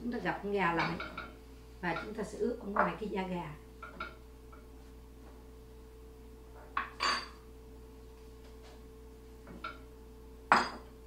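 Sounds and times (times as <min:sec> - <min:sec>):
faint steady hum: 0:00.0 - 0:11.0
dishes clinking and scraping: 0:06.6 - 0:07.4, 0:10.5 - 0:10.9.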